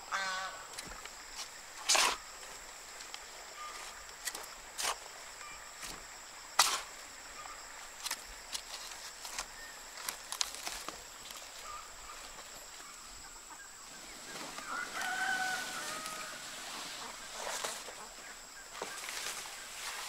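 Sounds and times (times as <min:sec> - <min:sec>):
steady high hiss: 0:00.0 - 0:20.0
rooster crowing: 0:14.7 - 0:16.7.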